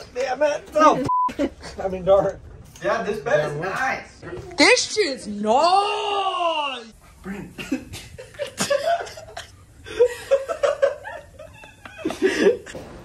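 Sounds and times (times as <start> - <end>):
person laughing: 7.5 - 12.8.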